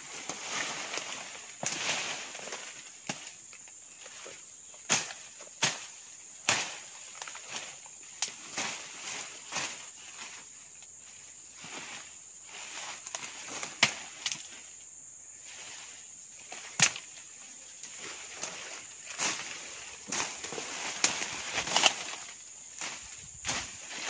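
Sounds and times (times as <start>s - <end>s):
bamboo and brush rustling: 0.0s - 24.0s
high insect drone: 0.0s - 24.0s
sharp cracks of stems: 0.2s - 4.2s, 4.8s - 10.3s, 12.9s - 14.7s, 16.4s - 17.2s, 17.8s - 24.0s.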